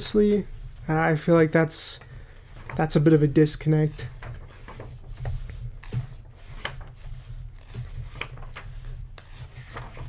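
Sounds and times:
paper pages rustling: 0:03.8 - 0:10.0.

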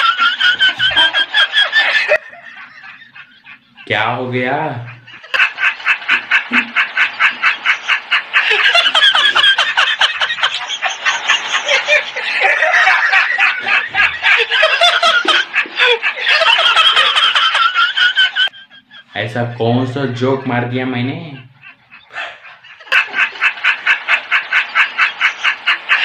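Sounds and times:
high-pitched laughter: 0:05.0 - 0:19.2.

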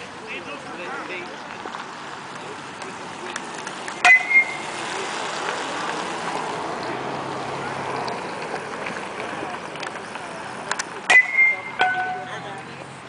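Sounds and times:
outdoor background noise: 0:00.0 - 0:13.0
metal bat hitting ball: 0:04.0 - 0:04.6, 0:11.0 - 0:12.4.

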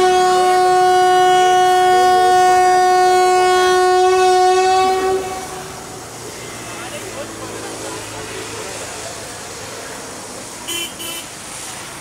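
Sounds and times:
locomotive horn blast: 0:00.0 - 0:08.6, 0:10.7 - 0:11.4.

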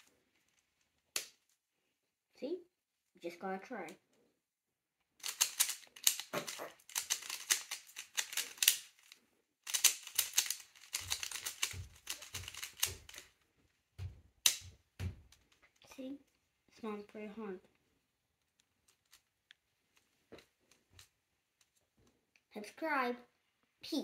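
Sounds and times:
puzzle cube clicking: 0:05.2 - 0:13.3, 0:14.4 - 0:14.7.

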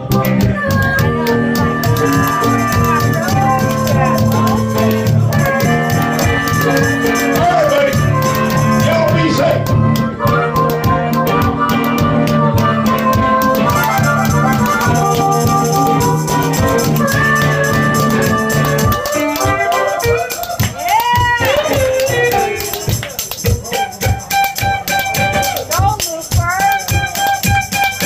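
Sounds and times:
live band music: 0:00.0 - 0:28.0
spoons rattling rhythmically: 0:01.2 - 0:09.6, 0:11.8 - 0:28.0.

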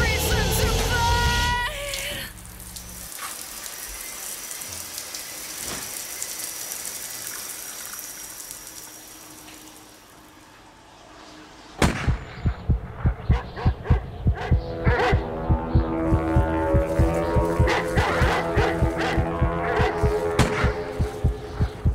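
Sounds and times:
fast low throbbing thumps: 0:11.8 - 0:21.9.

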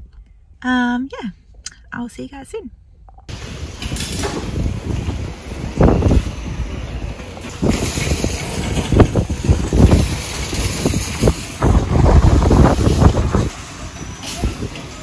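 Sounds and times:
wind buffeting microphone: 0:03.3 - 0:15.0.

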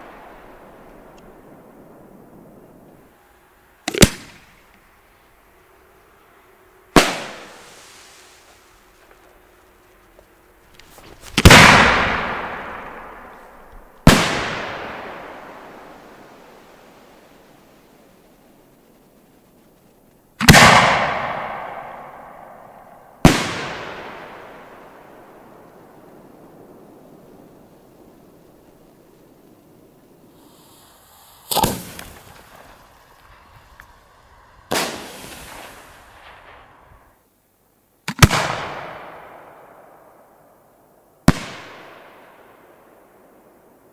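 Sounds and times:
faint hiss: 0:00.0 - 0:43.9
firework bangs with rumbling echo: 0:07.0 - 0:07.8, 0:11.3 - 0:16.0, 0:20.4 - 0:27.6, 0:30.5 - 0:37.2.

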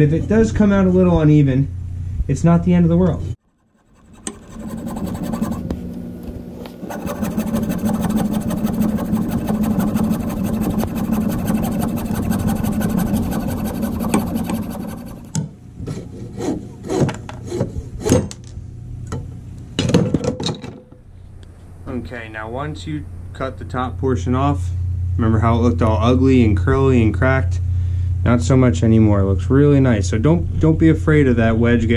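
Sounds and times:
saw cutting wood: 0:03.4 - 0:05.8, 0:06.8 - 0:15.4.

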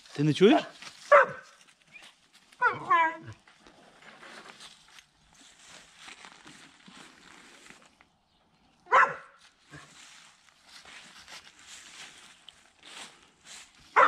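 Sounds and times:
dog barking: 0:00.6 - 0:01.6, 0:08.9 - 0:09.9.

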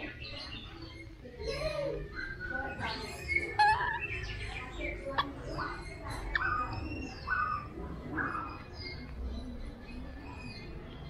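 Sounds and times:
baby monkey squeaky calls: 0:02.0 - 0:04.4.

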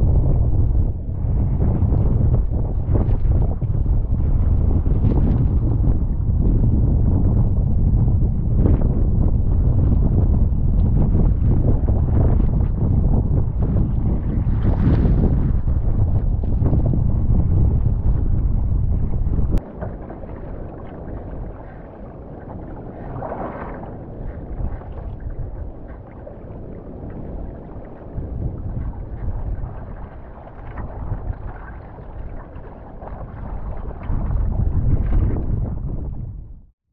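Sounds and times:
storm wind buffeting microphone: 0:00.0 - 0:36.7
water sloshing around hull: 0:08.6 - 0:36.2
paddle stroke splashes: 0:19.6 - 0:35.3.

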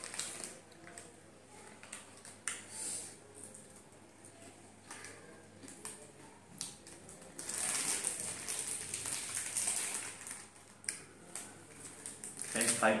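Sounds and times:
plastic chip packet crinkling: 0:00.0 - 0:02.6, 0:06.6 - 0:13.0.

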